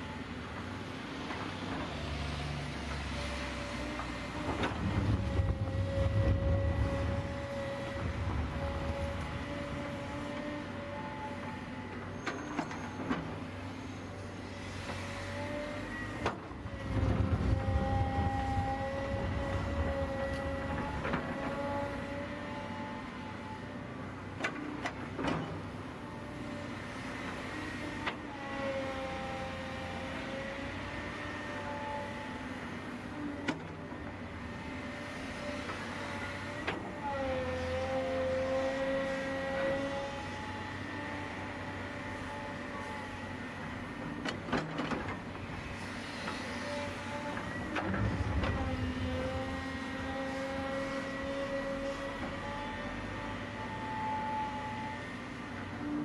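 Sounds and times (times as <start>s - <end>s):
excavator diesel engine running: 0.0s - 56.0s
excavator engine running: 3.8s - 12.0s
hydraulics whining: 4.4s - 11.4s, 44.2s - 54.8s.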